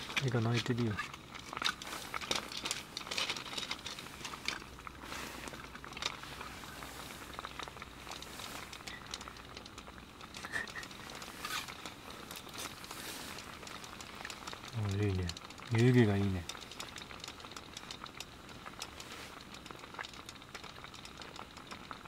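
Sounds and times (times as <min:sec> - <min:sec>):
clothing rustling: 0:01.0 - 0:09.0, 0:11.0 - 0:13.6.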